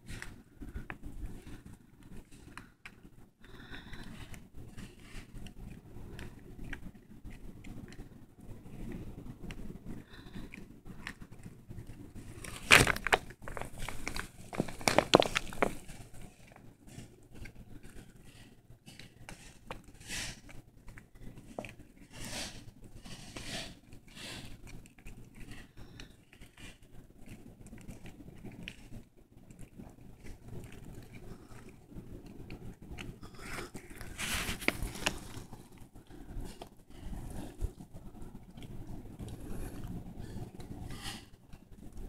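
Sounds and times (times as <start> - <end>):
insect crunching a shell: 10.5 - 18.1.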